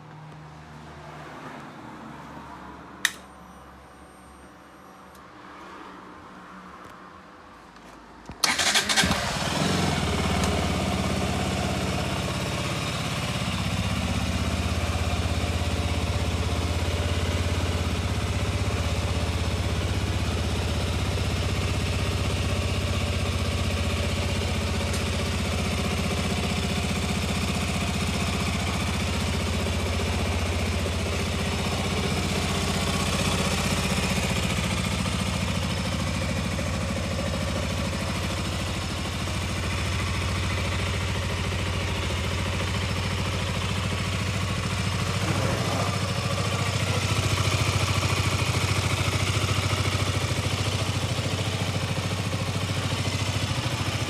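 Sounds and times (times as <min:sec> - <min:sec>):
motorcycle engine starting and idling: 0:08.2 - 0:54.0.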